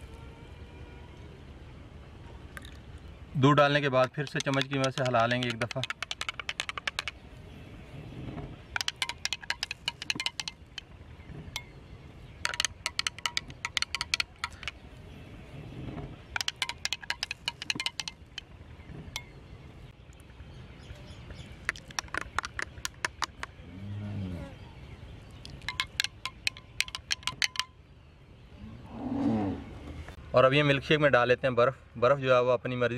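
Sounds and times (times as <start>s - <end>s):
metal spoon clinking in glass: 25.6s - 27.7s.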